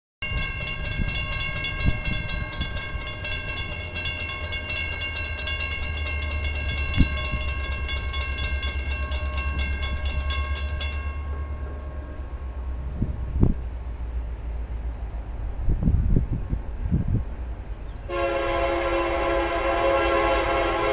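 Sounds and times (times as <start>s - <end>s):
railroad crossing bell ringing: 0.2s - 13.0s
steady low rumble: 0.2s - 18.1s.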